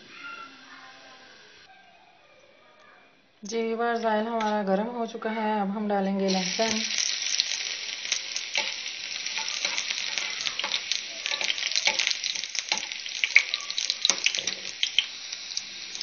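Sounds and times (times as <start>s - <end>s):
garlic sizzling in hot oil: 6.2s - 16.0s.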